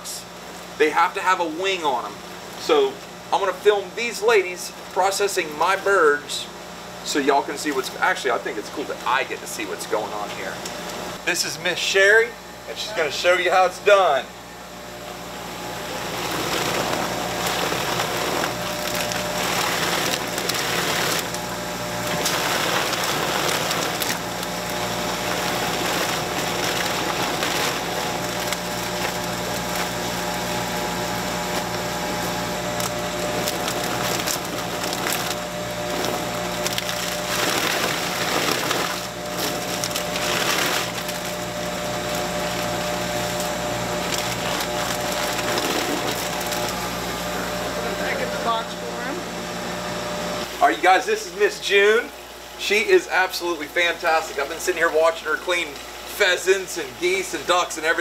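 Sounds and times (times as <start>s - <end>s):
plucking machine running: 1.4s - 52.0s.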